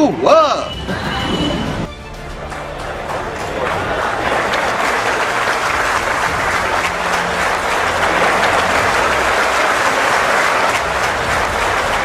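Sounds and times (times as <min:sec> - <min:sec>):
audience applauding: 0:01.8 - 0:12.0.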